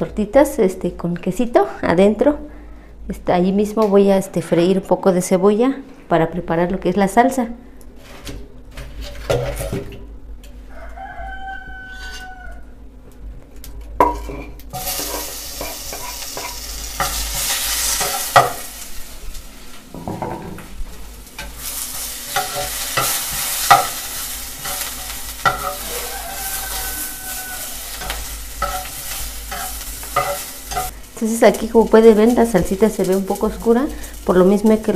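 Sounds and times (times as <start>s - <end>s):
rooster crowing: 10.6s - 12.8s, 25.5s - 28.2s
metal spatula scraping pan: 11.9s - 12.3s, 21.4s - 30.9s
onion sizzling in oil: 14.0s - 34.9s.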